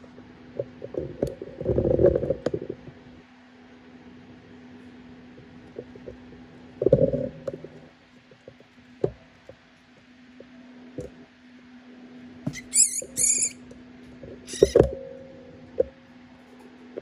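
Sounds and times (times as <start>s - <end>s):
steady low hum: 0.0s - 17.0s
rat squealing: 12.5s - 13.7s, 14.4s - 14.9s.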